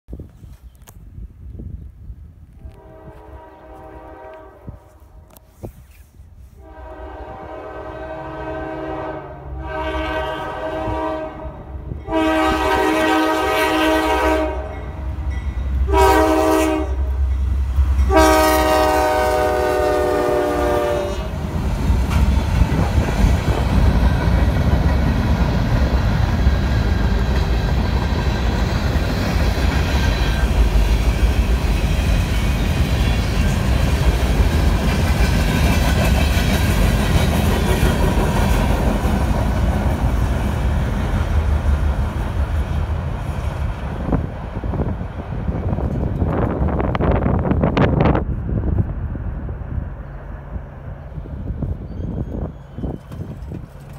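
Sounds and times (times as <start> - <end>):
freight train rumbling over rails: 1.2 - 5.4, 6.4 - 53.9
locomotive chime horn blasts: 2.6 - 5.0, 6.6 - 17.4, 18.0 - 21.3.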